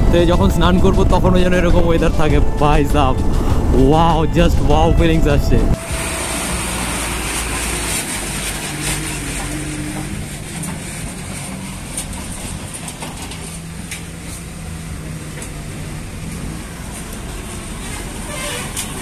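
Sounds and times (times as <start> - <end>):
motorcycle engine running: 0.0 - 13.7
wind and road noise: 0.0 - 19.0.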